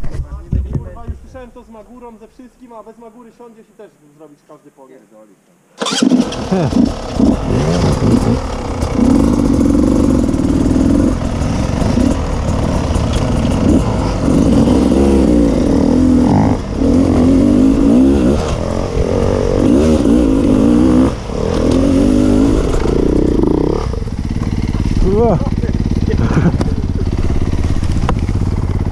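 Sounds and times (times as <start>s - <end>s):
motorcycle engine revving: 5.8s - 28.9s.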